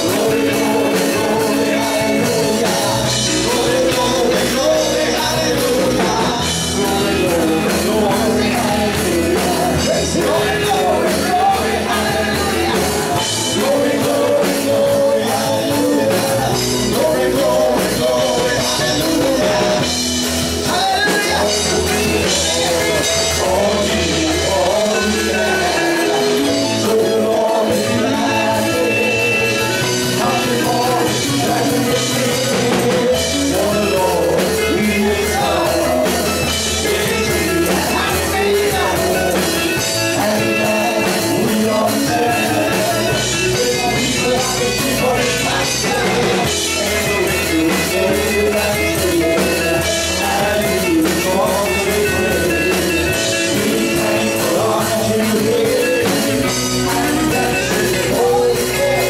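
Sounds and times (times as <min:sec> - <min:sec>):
bass guitar: 0:00.0 - 0:59.0
drum kit: 0:00.0 - 0:59.0
electric guitar: 0:00.0 - 0:59.0
keyboard: 0:00.0 - 0:59.0
men singing into microphones: 0:00.0 - 0:59.0.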